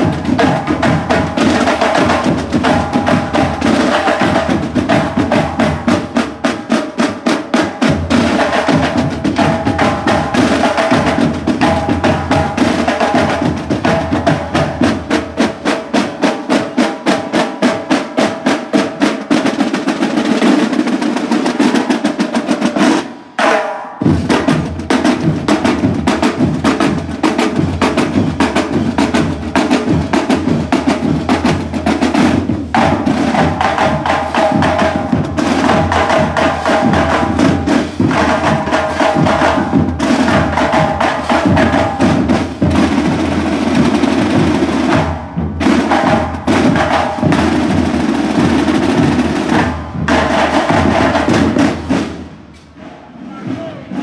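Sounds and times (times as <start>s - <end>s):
heavy low drum beat: 0.0s - 18.2s, 22.1s - 52.5s
snare drums in march cadence: 0.0s - 54.0s.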